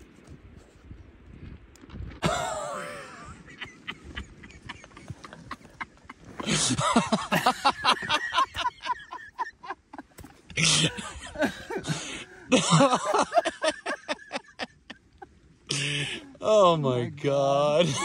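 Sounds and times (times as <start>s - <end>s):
man laughing breathlessly: 2.2s - 15.0s, 15.7s - 16.4s.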